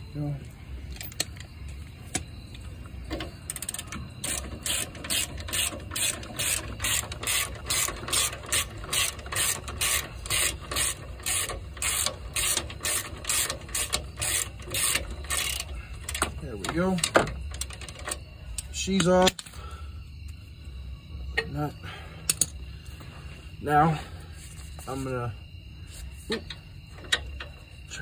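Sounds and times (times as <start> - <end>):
hand ratchet clicking: 3.1 - 19.5.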